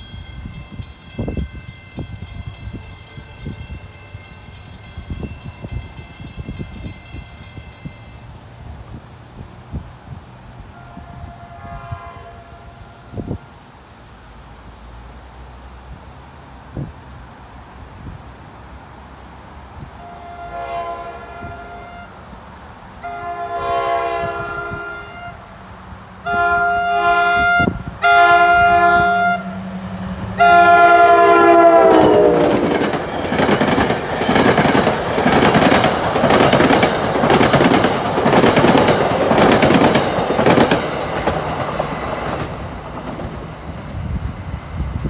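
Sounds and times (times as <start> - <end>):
train air horn blasts: 10.6 - 13.5, 20.0 - 22.2, 23.0 - 25.5, 26.2 - 29.8, 30.4 - 32.8
train wheels clattering over rail joints: 32.0 - 43.6.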